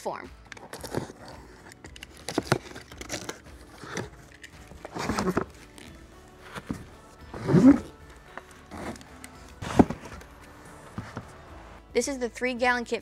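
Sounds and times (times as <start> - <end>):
light background music: 0.0 - 13.0
knife slitting packing tape: 0.6 - 5.4
plastic jugs lifted out: 2.2 - 5.9, 9.6 - 10.3.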